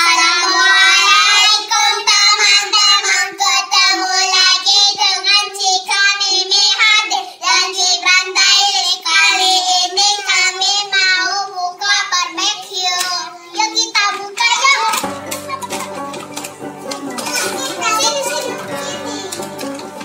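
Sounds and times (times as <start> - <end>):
children singing: 0.0 - 20.0
children clapping: 14.0 - 20.0.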